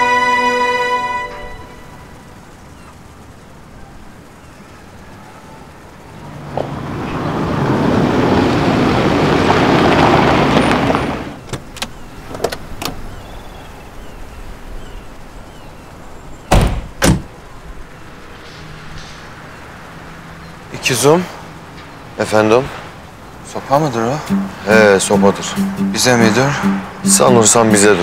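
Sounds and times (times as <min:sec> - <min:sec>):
car driving over gravel: 0:06.5 - 0:12.8
car door clicks: 0:16.5 - 0:17.3
car doors slamming: 0:16.5 - 0:17.3.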